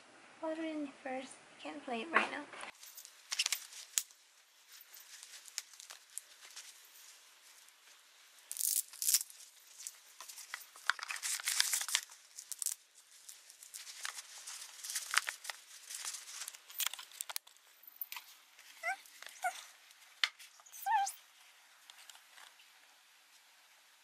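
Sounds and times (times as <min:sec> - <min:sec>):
fabric dog toy rustling: 0:02.7 - 0:08.4, 0:13.0 - 0:16.8.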